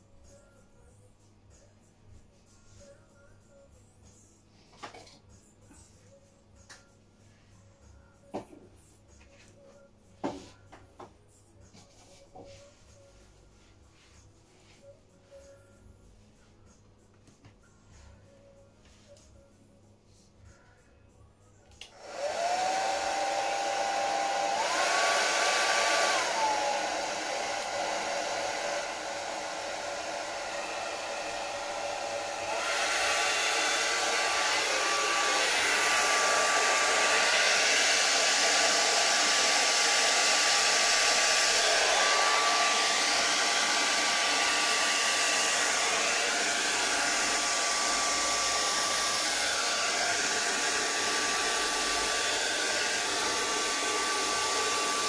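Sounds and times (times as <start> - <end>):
hair dryer blowing with motor whine: 21.8 - 55.0.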